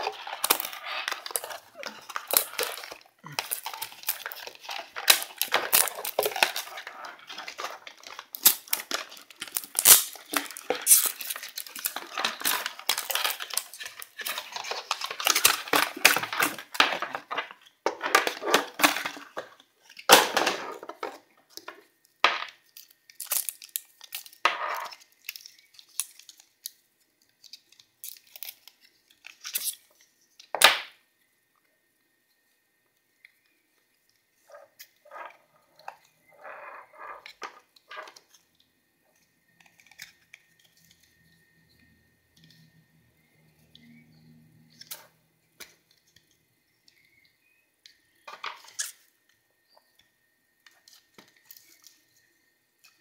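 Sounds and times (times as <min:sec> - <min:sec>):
packaging being torn: 0:00.0 - 0:17.1, 0:22.8 - 0:26.8, 0:27.5 - 0:29.9
packaging crackling and rustling: 0:00.0 - 0:21.9, 0:22.6 - 0:30.1.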